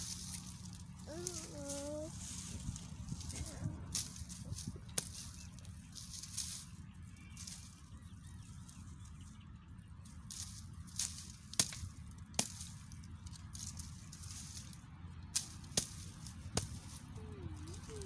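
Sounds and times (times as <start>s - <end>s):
hatchet chopping dry branches: 3.9s - 6.6s, 10.3s - 18.0s.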